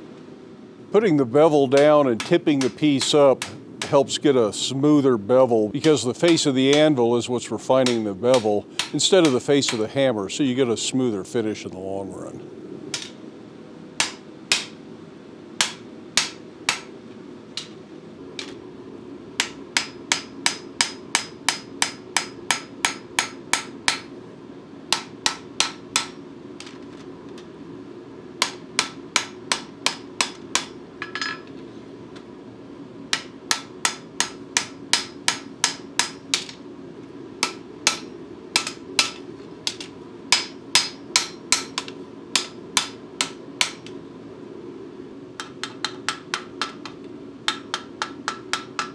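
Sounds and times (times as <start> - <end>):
hammer striking steel on anvil: 7.8 - 9.9, 14.0 - 14.8, 15.6 - 16.9, 19.4 - 24.1, 24.9 - 26.2, 28.4 - 31.5, 33.1 - 36.6, 37.4 - 44.0, 45.4 - 48.9.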